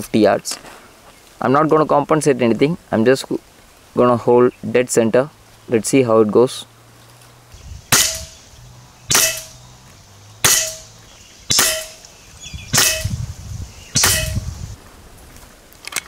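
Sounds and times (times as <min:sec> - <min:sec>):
air rifle shots: 0:07.9 - 0:08.5, 0:09.1 - 0:09.6, 0:10.4 - 0:13.2, 0:13.9 - 0:14.6.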